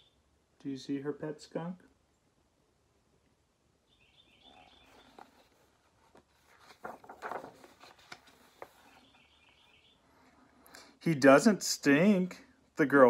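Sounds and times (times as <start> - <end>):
paper page turning: 4.8 - 9.2.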